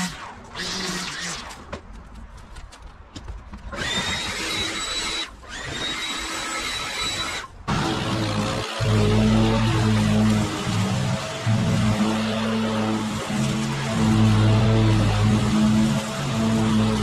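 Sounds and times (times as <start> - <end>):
leaf blower running: 8.8 - 17.0.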